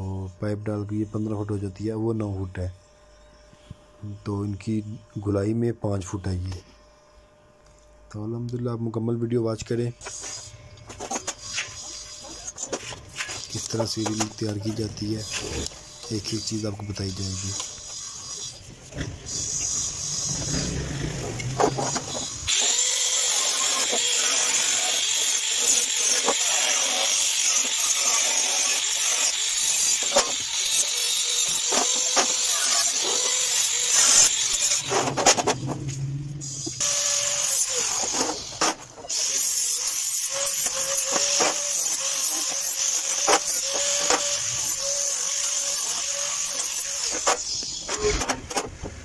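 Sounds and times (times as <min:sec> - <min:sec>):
angle grinder cutting steel: 0:10.0 - 0:48.4.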